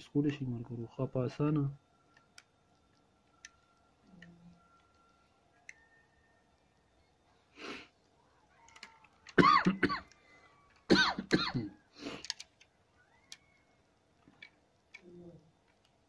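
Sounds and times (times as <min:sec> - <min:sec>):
short breaths: 0:07.5 - 0:08.0
person coughing: 0:09.4 - 0:10.1, 0:10.9 - 0:11.8.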